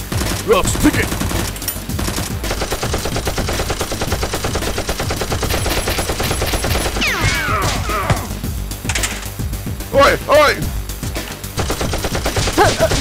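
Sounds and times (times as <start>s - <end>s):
rapid machine gun fire: 0.0s - 7.9s, 11.4s - 13.0s.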